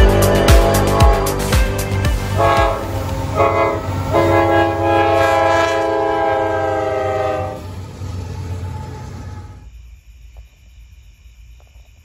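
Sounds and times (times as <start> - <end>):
locomotive air horn blasts: 0.0 - 1.6, 2.2 - 9.6
locomotive engine rumble: 0.0 - 9.7.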